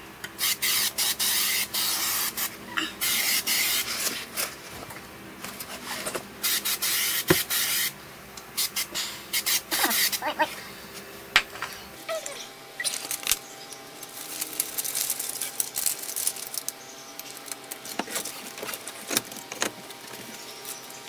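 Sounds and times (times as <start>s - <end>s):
aerosol can spraying: 0.4s - 4.4s, 5.8s - 8.0s, 8.6s - 10.4s.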